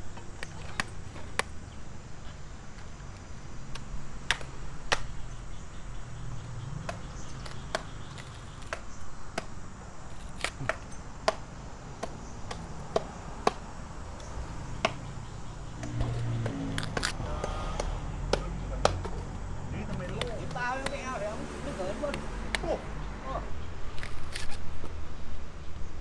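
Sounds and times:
knife chopping fruit: 6.8s - 9.6s, 10.3s - 19.3s.

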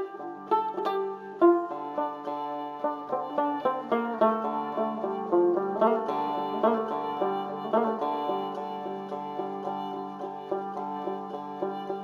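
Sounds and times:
plucked string instrument music: 0.0s - 12.0s.

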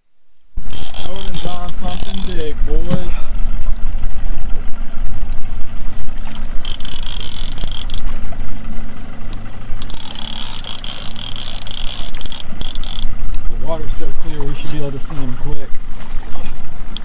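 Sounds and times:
steady low rumble: 0.0s - 17.0s
fishing reel drag buzzing: 0.6s - 2.6s, 6.6s - 8.1s, 9.8s - 13.3s.

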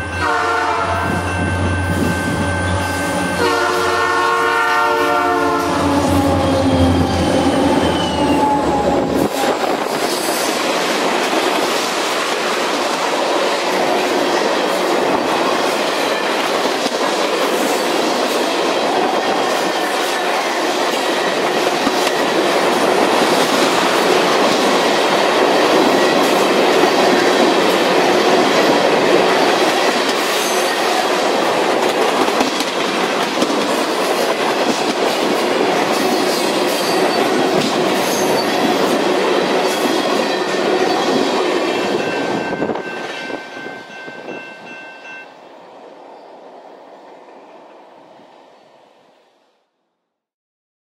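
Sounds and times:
train wheels on rails: 0.0s - 48.8s
diesel locomotive rumble: 5.1s - 10.1s
faint high squeals: 5.8s - 9.1s.

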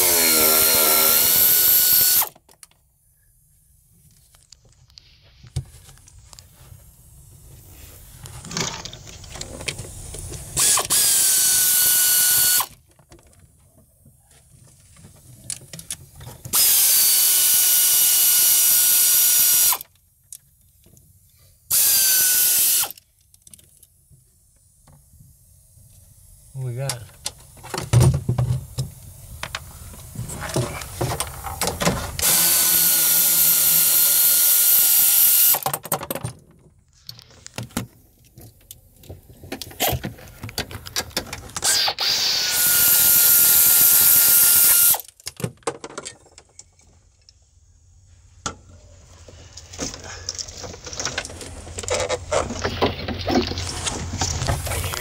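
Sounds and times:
power drill running: 0.0s - 2.4s, 10.6s - 12.7s, 16.5s - 19.8s, 21.7s - 23.0s, 32.2s - 35.6s, 41.6s - 45.1s
tools clanking and rattling: 45.1s - 47.0s, 49.8s - 54.8s.

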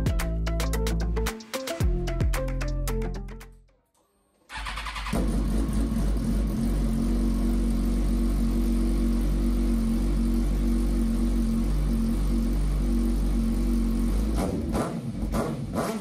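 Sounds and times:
motorcycle starter turning over: 4.5s - 5.4s
motorcycle engine idling: 4.5s - 15.4s.

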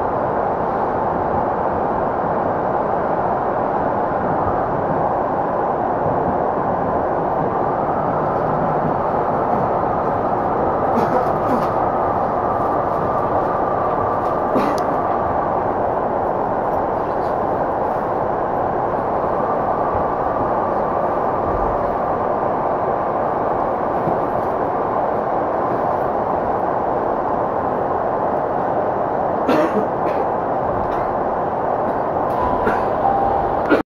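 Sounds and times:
train wheels rumbling on rail: 0.0s - 33.8s.

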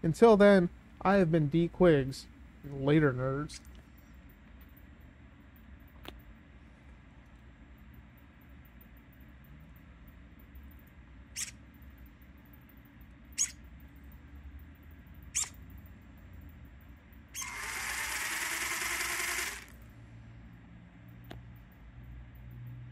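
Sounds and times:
servo whirring: 11.4s - 11.6s, 13.4s - 13.6s, 15.3s - 15.6s, 17.3s - 19.8s
electric motor whirring: 17.4s - 19.8s.

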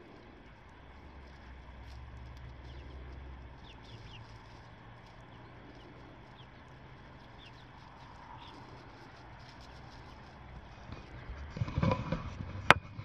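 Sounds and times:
low rumble: 0.0s - 13.0s
high bird chirps: 2.5s - 10.4s.

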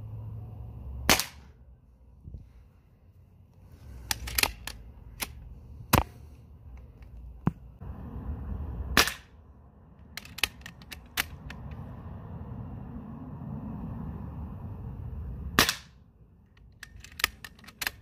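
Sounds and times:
air rifle shots cracking: 1.1s - 1.5s
rifle clicks: 4.0s - 5.4s, 10.1s - 11.6s, 16.6s - 18.0s.

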